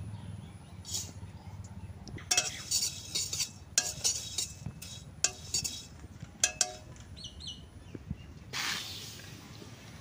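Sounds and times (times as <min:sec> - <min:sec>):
spatula scraping rice in pan: 0:02.3 - 0:06.9
spatula clinking metal pan: 0:02.3 - 0:07.0.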